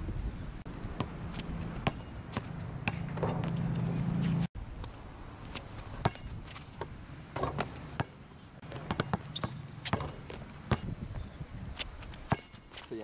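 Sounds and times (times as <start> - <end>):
basketball bouncing on hard court: 1.0 - 3.8, 7.4 - 11.0, 12.3 - 12.6.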